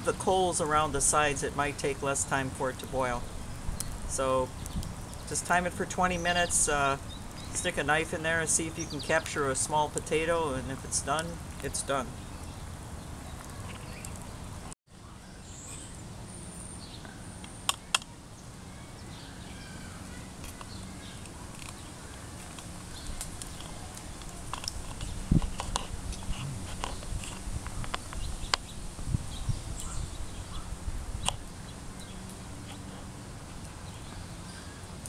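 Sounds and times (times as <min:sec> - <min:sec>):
bird chirps: 0:27.7 - 0:32.9.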